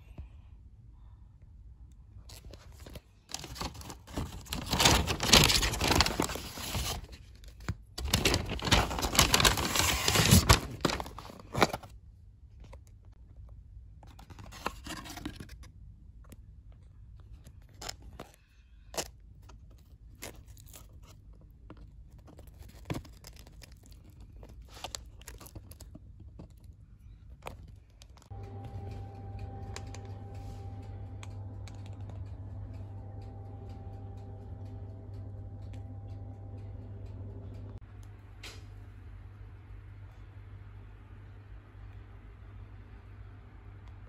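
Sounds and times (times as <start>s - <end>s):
steady electrical hum: 0.0s - 13.1s, 27.9s - 44.0s
paper packaging rustling and tearing: 2.3s - 11.9s, 14.1s - 15.7s, 19.0s - 28.3s.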